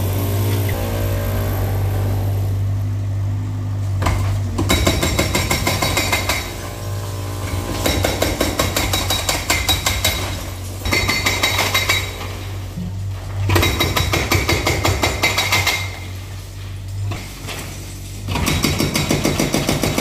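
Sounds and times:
diesel engine running: 0:00.0 - 0:08.8
hydraulic breaker hammering concrete: 0:04.0 - 0:12.6, 0:13.4 - 0:16.2, 0:18.3 - 0:20.0.

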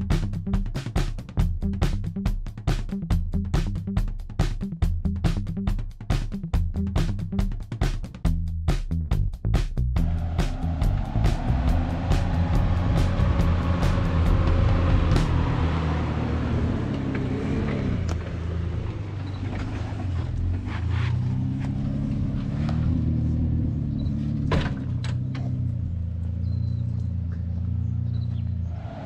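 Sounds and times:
vehicle engine revving: 0:10.0 - 0:29.0.

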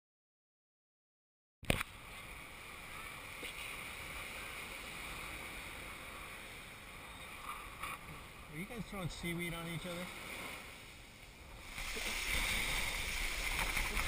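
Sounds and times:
surf breaking: 0:01.9 - 0:14.0.

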